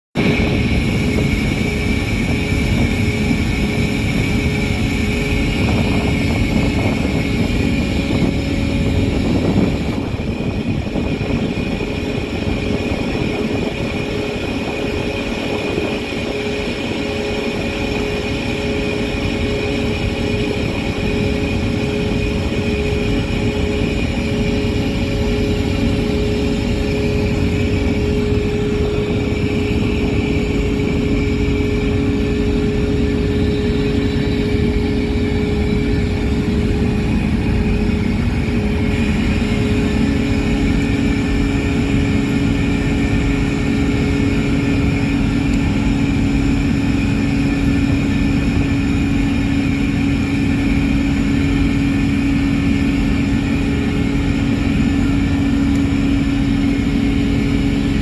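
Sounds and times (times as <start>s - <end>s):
ship machinery drone: 0.2s - 58.0s
steady whine: 0.2s - 58.0s.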